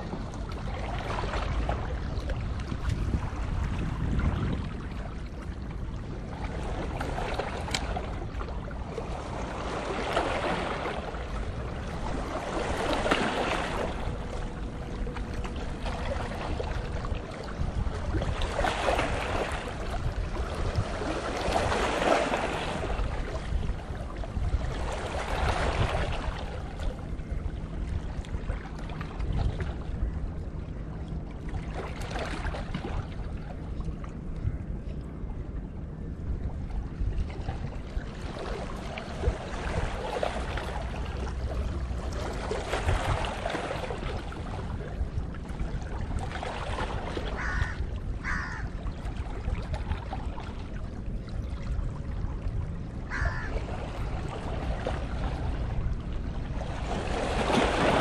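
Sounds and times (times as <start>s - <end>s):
wind rumbling on microphone: 0.0s - 58.0s
small waves washing against rocks: 56.6s - 58.0s.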